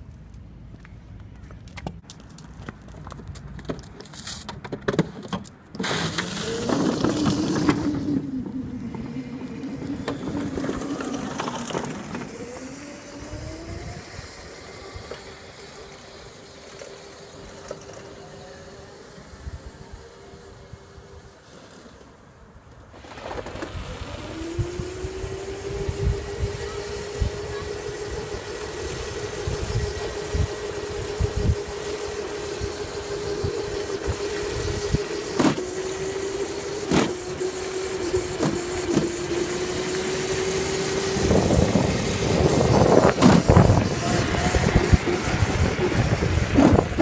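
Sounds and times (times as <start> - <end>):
tyre noise on asphalt: 0.0 - 47.0
electric motor whine: 6.0 - 21.4, 23.2 - 47.0
wind rumble on microphone: 6.4 - 15.1, 23.6 - 35.2, 40.4 - 47.0.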